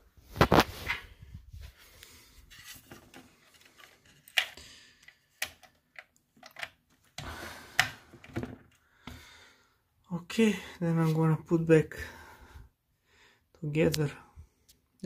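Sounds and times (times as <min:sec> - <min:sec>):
plastic and metal clicks: 0:04.2 - 0:06.9.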